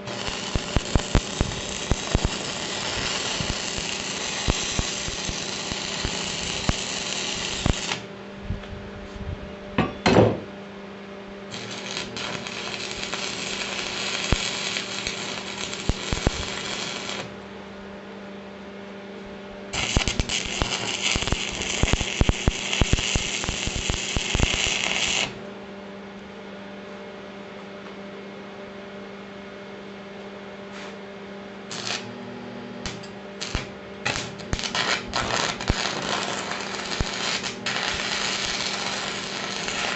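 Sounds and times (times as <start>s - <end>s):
arc welder crackling: 0.0s - 8.1s, 11.5s - 17.4s, 19.7s - 25.4s, 31.7s - 39.9s
steady hum: 0.0s - 39.9s.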